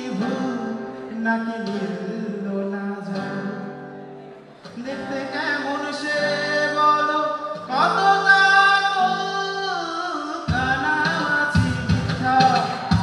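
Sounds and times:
acoustic guitar: 0:00.0 - 0:13.0
man singing with vibrato: 0:00.0 - 0:13.0
low percussion beat: 0:10.5 - 0:13.0.

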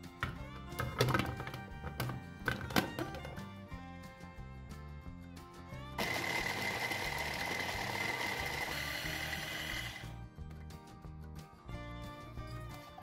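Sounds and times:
background music: 0:00.0 - 0:13.0
blade grinding pumpkin: 0:06.0 - 0:10.0
hand blender motor whining: 0:06.0 - 0:10.2.

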